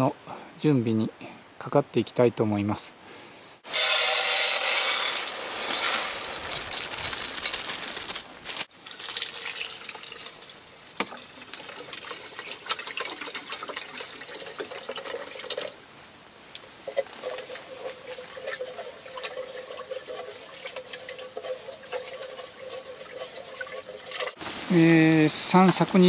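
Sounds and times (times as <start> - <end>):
water running into tin: 3.7 - 8.1, 8.8 - 15.8, 16.8 - 24.4
rice poured into metal tin: 3.7 - 10.4.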